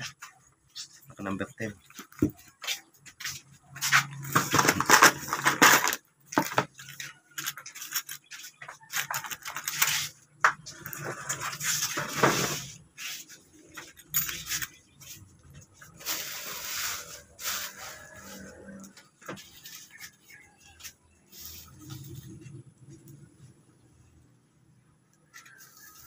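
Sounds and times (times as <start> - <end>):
plastic packaging crinkling: 4.1 - 10.2
small parts clicking and clinking: 13.8 - 14.8.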